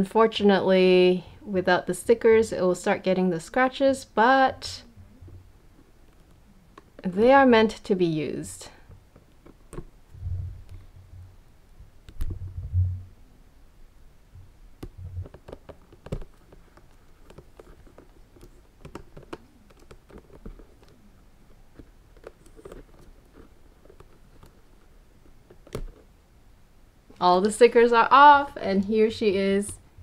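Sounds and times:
soft low handling bumps: 8.8s - 13.2s
plastic film peeling crinkles: 14.9s - 26.1s.

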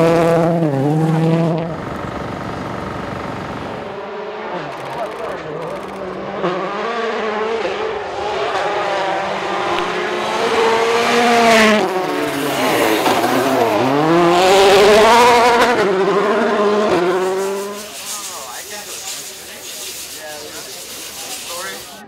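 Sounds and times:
rally car engine at high revs: 0.0s - 22.0s
gravel spraying from tyres: 17.0s - 22.0s.

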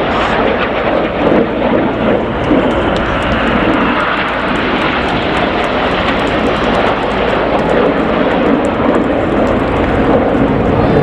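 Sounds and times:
jets flying past roaring: 0.0s - 11.0s.

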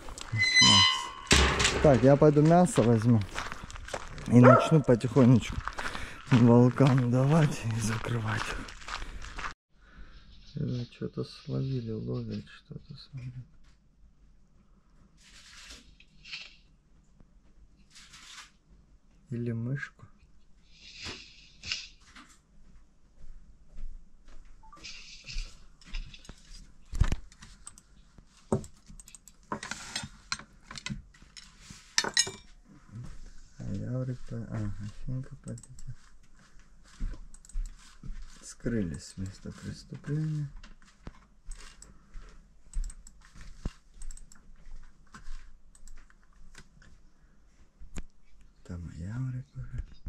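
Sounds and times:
loud thump: 1.3s - 2.4s
light clicks and taps: 34.6s - 38.1s.

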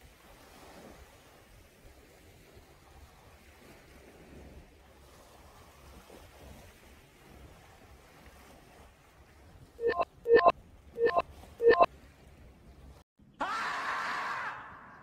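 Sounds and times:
short electronic beeps: 9.8s - 11.9s
long hoarse scream: 13.4s - 15.0s.

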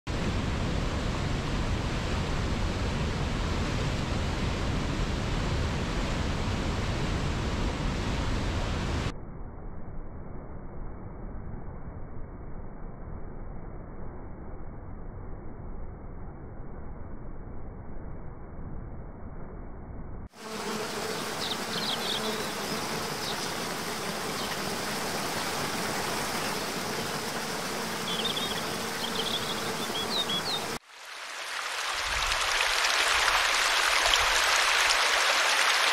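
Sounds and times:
dull rush of waterfall brink: 0.1s - 9.1s
faint steady buzz: 20.3s - 30.8s
small birds chirping: 21.0s - 26.7s, 27.7s - 30.8s
waterfall pouring over rocks: 30.8s - 35.9s.

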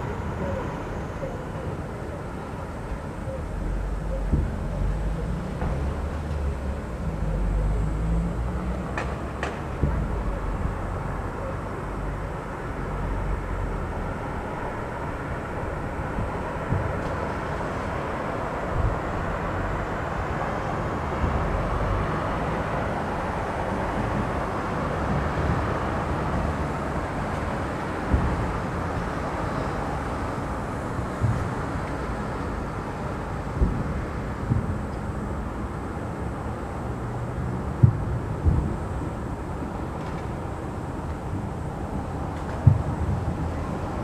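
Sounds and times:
low rumble of booms: 3.6s - 8.3s, 33.5s - 35.4s, 37.7s - 39.8s, 42.6s - 44.0s.

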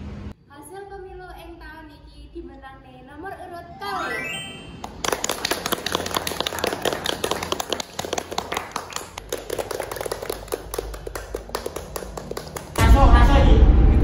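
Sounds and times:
people applauding: 4.8s - 12.8s.

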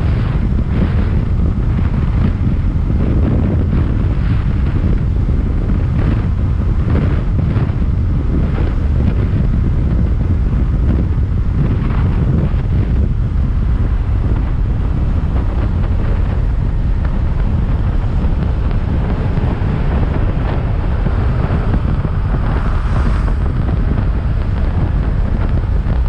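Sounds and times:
wind buffeting microphone: 0.0s - 26.0s.

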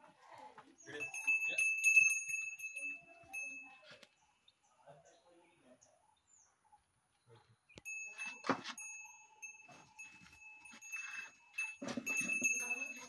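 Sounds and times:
small bell ringing: 0.8s - 4.0s, 7.8s - 13.0s.

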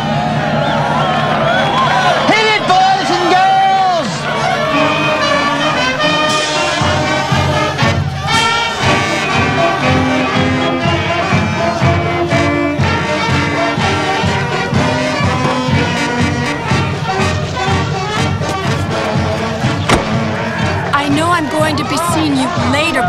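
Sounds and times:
brass marching band: 0.0s - 23.0s.

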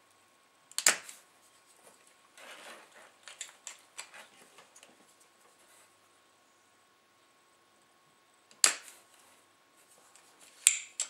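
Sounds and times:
desoldering pump snap: 0.7s - 1.2s, 8.5s - 9.0s
short scrape: 2.4s - 3.2s.

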